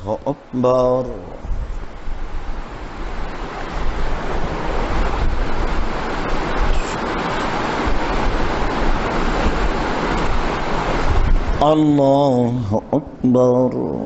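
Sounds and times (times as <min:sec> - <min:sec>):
loud rushing noise: 0:00.0 - 0:12.9.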